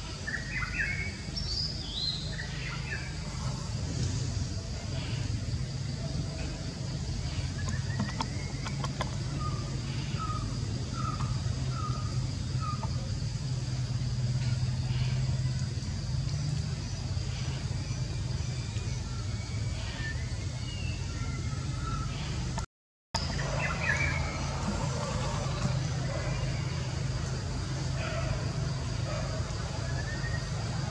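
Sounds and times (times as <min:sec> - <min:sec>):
low engine-like drone: 0:00.0 - 0:22.6, 0:23.2 - 0:30.9.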